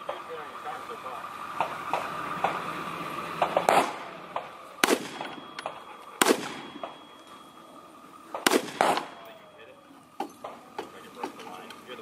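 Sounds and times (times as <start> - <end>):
rifle shots: 3.4 - 7.0, 8.3 - 9.3.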